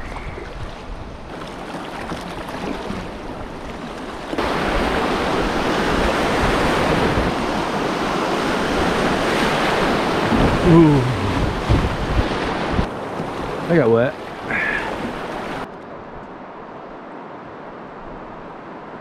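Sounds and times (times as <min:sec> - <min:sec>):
whitewater rapids rushing: 0:04.4 - 0:15.7.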